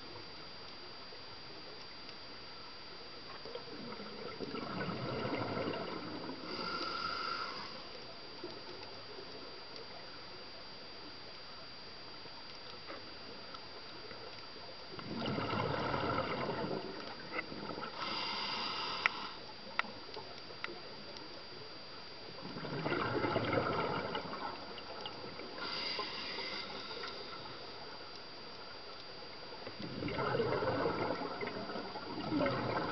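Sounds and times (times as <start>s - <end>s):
scuba regulator breathing: 6.4s - 8.0s, 17.8s - 19.6s, 25.5s - 27.8s.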